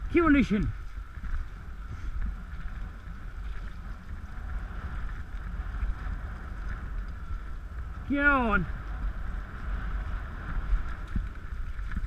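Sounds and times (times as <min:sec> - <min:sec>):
wheels rumbling on rough path: 0:00.0 - 0:12.0
wind on microphone: 0:00.0 - 0:12.0.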